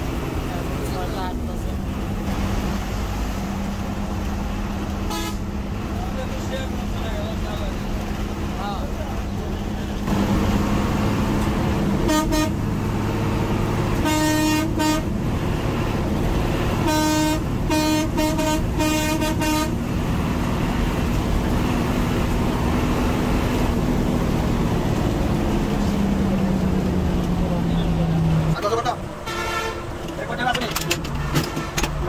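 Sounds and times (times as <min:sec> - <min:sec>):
engine and road noise: 0:00.0 - 0:32.0
bus horn tooting: 0:05.0 - 0:05.6, 0:12.0 - 0:12.8, 0:13.8 - 0:15.2, 0:16.6 - 0:19.9, 0:29.2 - 0:30.4, 0:31.2 - 0:32.0.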